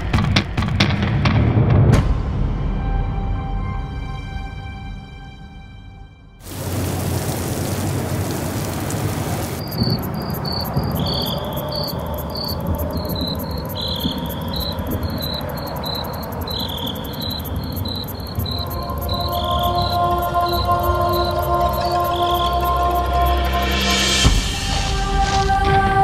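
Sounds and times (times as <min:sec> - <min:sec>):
steady hiss: 0:06.4 - 0:26.0
crickets chirping: 0:06.5 - 0:25.9.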